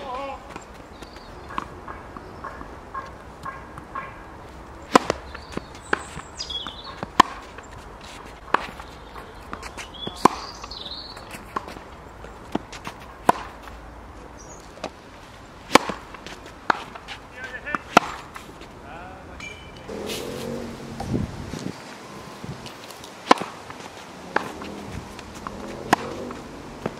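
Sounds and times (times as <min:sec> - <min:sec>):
tennis balls bouncing on hard court: 0:00.0 - 0:04.2, 0:04.8 - 0:13.8, 0:15.6 - 0:18.7, 0:22.6 - 0:26.9
tennis balls struck by rackets: 0:00.0 - 0:13.8, 0:14.5 - 0:18.8, 0:22.6 - 0:26.9.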